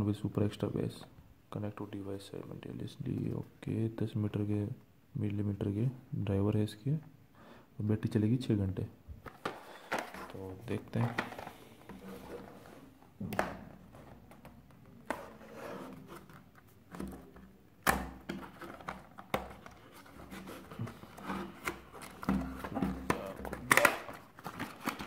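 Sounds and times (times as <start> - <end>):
cardboard rubbing and scraping: 15.1 - 16.4, 19.7 - 23.4.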